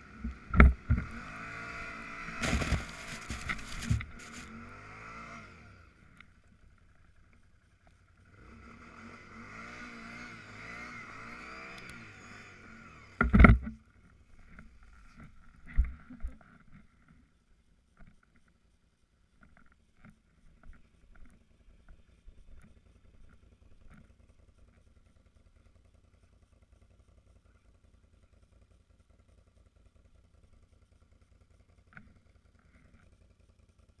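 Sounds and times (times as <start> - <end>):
muffled engine running: 0.0 - 17.4.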